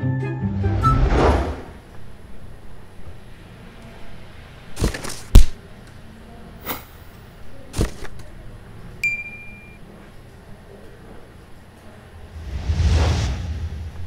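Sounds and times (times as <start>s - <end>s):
ding ringing: 9.0s - 9.8s
swishes: 12.3s - 14.0s.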